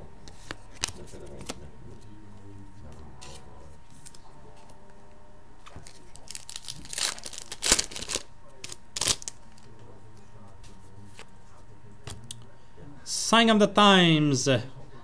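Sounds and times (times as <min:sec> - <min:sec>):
wrapper tearing and crinkling: 0:05.8 - 0:09.6.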